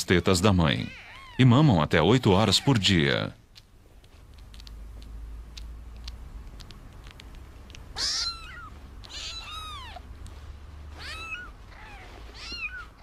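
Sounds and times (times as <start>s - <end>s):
kittens mewing: 0.6s - 3.7s, 6.0s - 13.0s.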